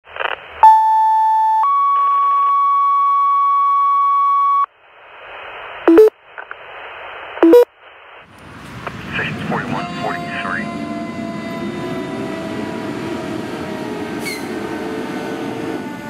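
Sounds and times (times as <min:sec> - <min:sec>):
radio hiss: 0:00.1 - 0:00.6, 0:04.8 - 0:10.6
two-tone radio page: 0:00.1 - 0:00.9, 0:05.0 - 0:10.7.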